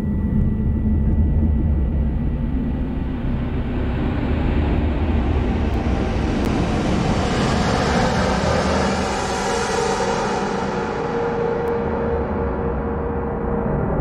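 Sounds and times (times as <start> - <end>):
deep steady rumble: 0.0 - 9.4.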